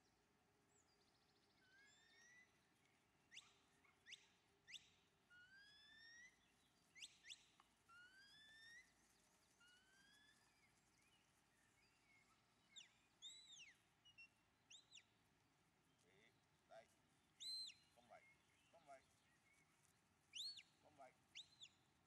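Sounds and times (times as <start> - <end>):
shepherd's whistle: 17.4 - 17.9, 20.3 - 20.7.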